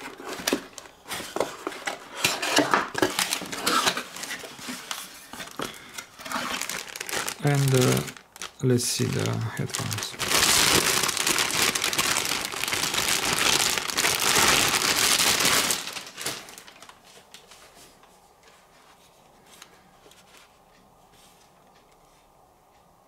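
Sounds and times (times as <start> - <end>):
packaging crinkling: 0.0 - 17.5.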